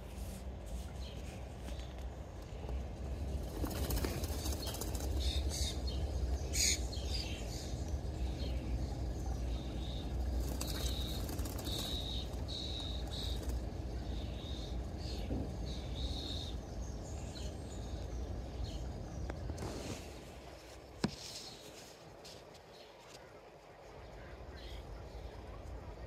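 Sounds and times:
steady low rumble: 0.0 - 21.0
birds fluttering and splashing: 0.8 - 7.2, 9.4 - 14.4.

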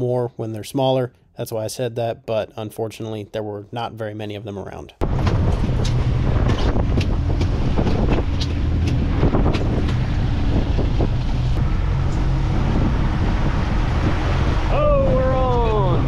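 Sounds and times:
sharp ticks and knocks: 5.0 - 12.2
boat engine running: 5.0 - 16.0
wind buffeting microphone: 5.0 - 16.0.

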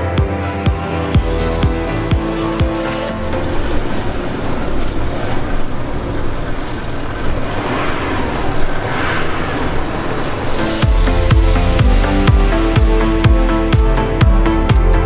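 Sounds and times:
car engine under load: 1.2 - 14.2
tyres crunching snow: 2.7 - 12.7.

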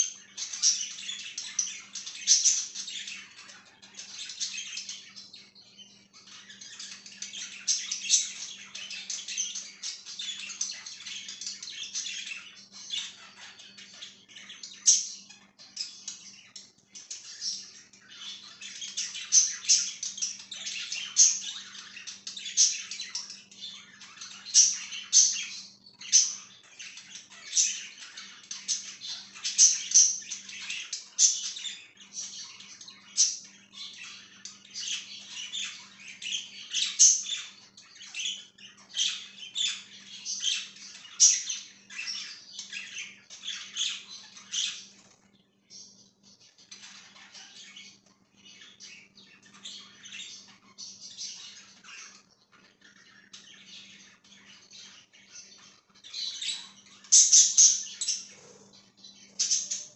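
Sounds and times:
budgerigars chattering: 0.0 - 45.0, 45.7 - 59.9
loud sharp bird calls: 45.8 - 59.9.

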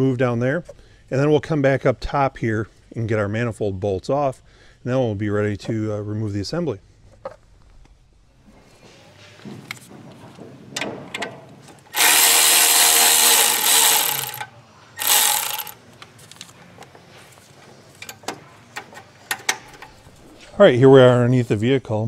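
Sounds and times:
power ratchet spinning: 11.9 - 15.8.

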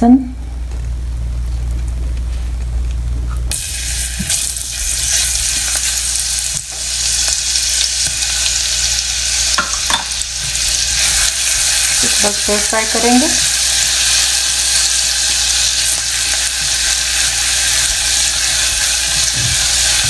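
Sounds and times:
low hum: 0.0 - 7.4
garlic sizzling in hot oil: 3.3 - 20.0.

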